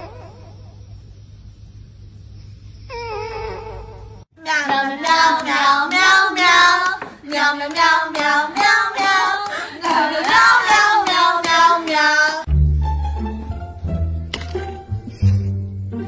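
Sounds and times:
high voice singing: 4.4s - 12.5s.

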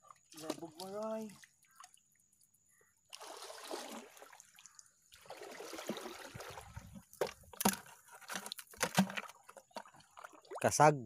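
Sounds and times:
water splashing and trickling: 0.0s - 11.0s
water streaming off net: 3.1s - 7.0s.

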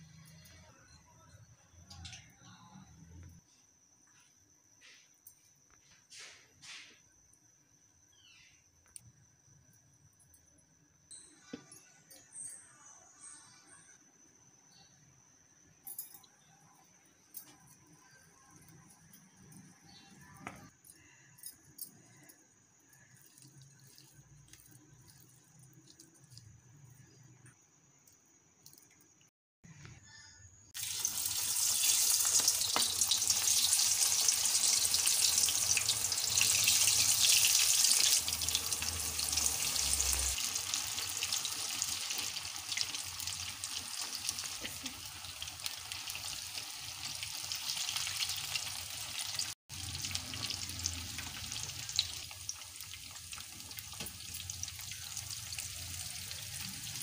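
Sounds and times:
deep-frying sizzle and crackle: 30.8s - 57.0s.

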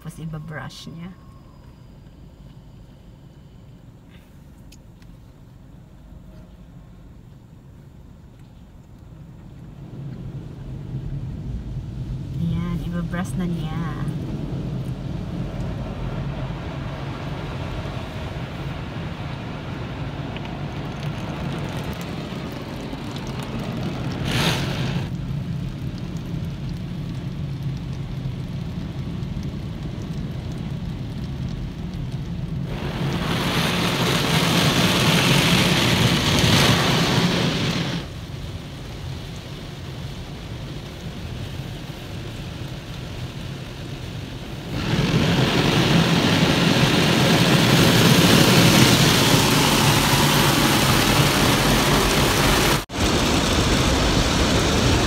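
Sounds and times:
car wash motors humming: 0.0s - 55.0s
rush of spray: 9.9s - 55.0s
brushes and water on car: 44.4s - 53.4s.

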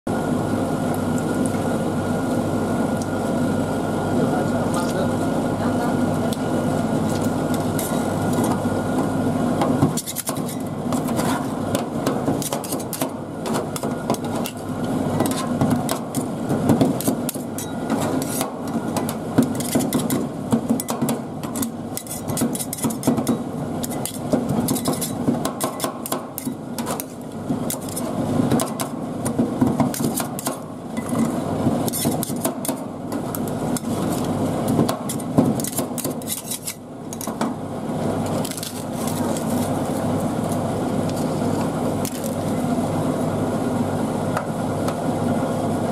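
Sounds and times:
metal spatulas clacking and scraping: 20.8s - 27.1s, 35.1s - 37.4s.

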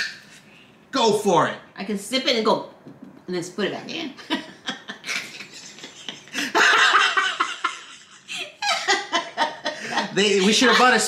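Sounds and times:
woman laughing: 4.2s - 10.7s.

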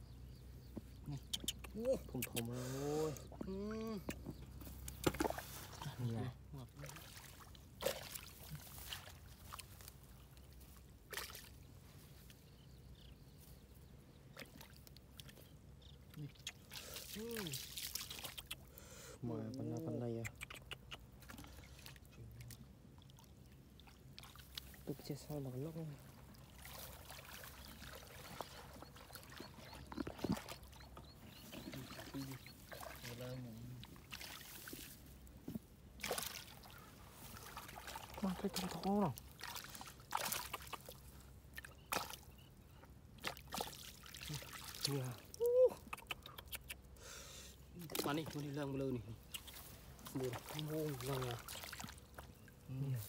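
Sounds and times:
water splashes: 4.8s - 11.7s, 16.1s - 42.4s, 43.2s - 46.7s, 47.7s - 53.0s
hands sloshing in muddy water: 4.8s - 12.4s, 16.2s - 18.7s, 21.1s - 42.5s, 43.2s - 45.9s, 49.2s - 53.0s.

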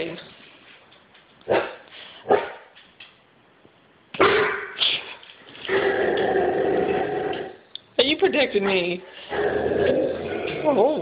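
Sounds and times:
dog barking: 1.5s - 2.7s.

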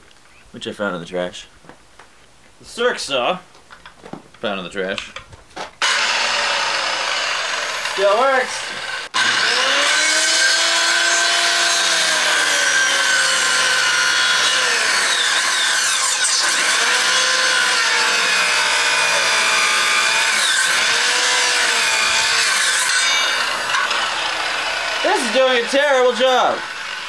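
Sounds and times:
circular saw cutting wood: 5.8s - 27.0s.

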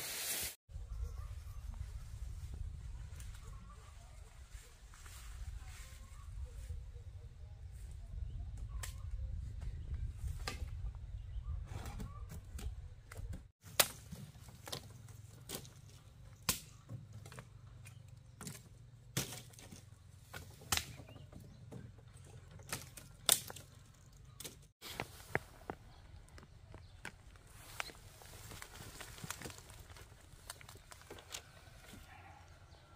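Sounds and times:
machete chopping dry stalks: 13.6s - 21.2s.

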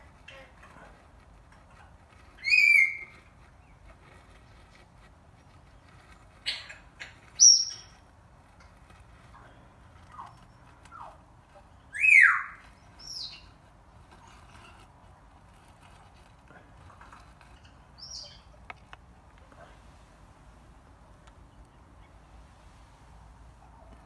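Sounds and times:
birds chirping: 1.8s - 8.1s, 9.2s - 14.8s, 16.8s - 19.5s.

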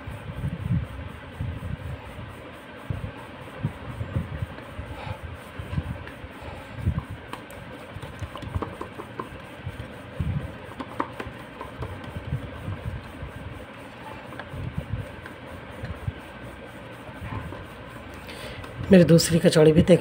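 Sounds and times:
hands patting dough on board: 6.9s - 13.2s.

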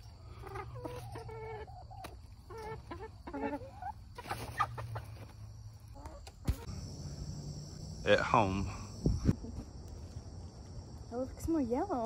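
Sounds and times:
hens scratching and pecking: 0.0s - 6.8s
hens clucking: 0.0s - 7.9s.

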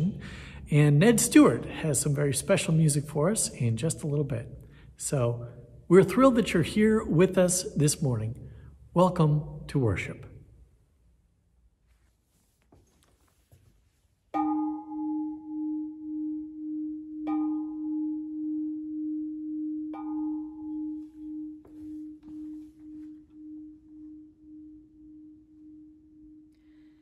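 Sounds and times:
singing bowl ringing: 14.4s - 27.0s.

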